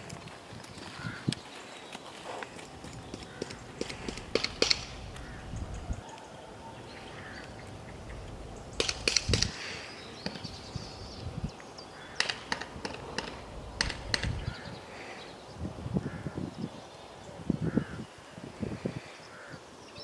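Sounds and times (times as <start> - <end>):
horse hooves on sand: 0.0 - 6.4
crows cawing: 0.9 - 1.3, 3.2 - 7.8, 11.9 - 15.2, 16.0 - 16.4, 17.6 - 18.1, 19.0 - 19.7.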